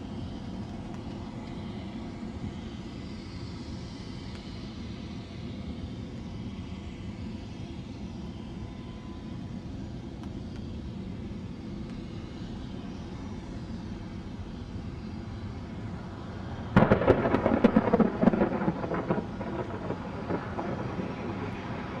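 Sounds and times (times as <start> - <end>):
jet engines rumbling: 0.0 - 22.0
loud crackling rush: 16.8 - 22.0.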